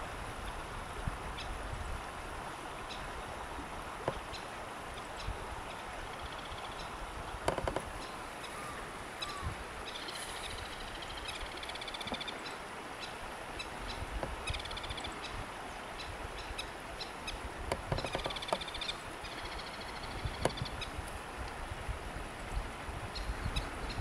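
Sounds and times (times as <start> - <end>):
wind buffeting microphone: 8.6 - 10.8, 20.0 - 24.0.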